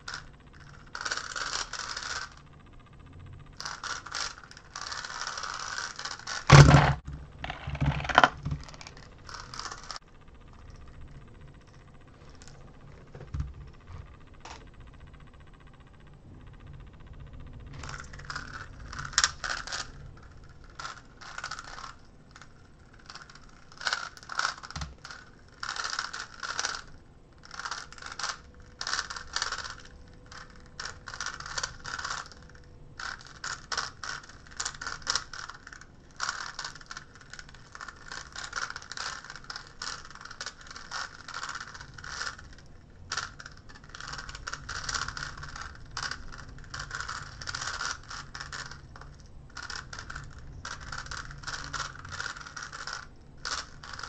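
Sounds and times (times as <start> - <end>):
plastic puzzle clicking: 3.6 - 10.0, 20.7 - 26.9, 27.5 - 54.0.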